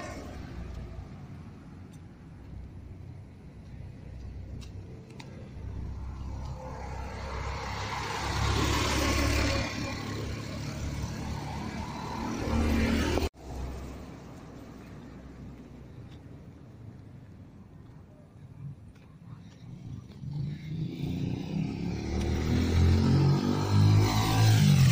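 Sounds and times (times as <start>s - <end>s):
vehicle passing by: 0.0s - 1.3s, 5.2s - 14.7s, 19.7s - 24.9s.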